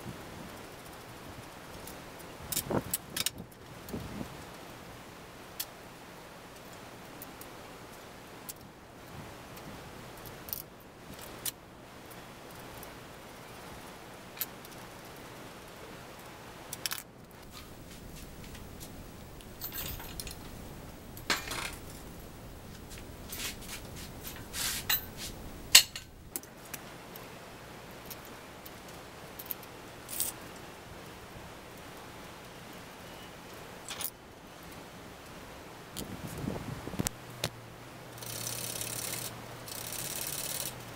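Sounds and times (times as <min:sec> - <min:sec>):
metal hand tools clinking: 0:19.4 - 0:20.6, 0:21.2 - 0:22.1, 0:23.3 - 0:26.2.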